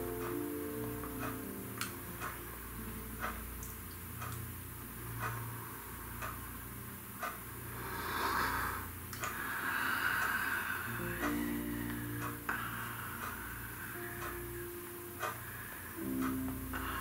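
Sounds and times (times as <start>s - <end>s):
clock ticking: 0.0s - 17.0s
steady low hum: 0.0s - 17.0s.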